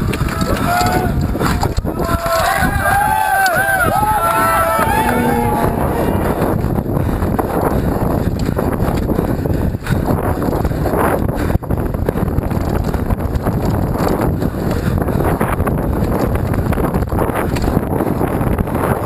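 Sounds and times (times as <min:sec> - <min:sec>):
wind buffeting microphone: 0:00.0 - 0:19.0
bike clattering over rough ground: 0:06.6 - 0:18.3.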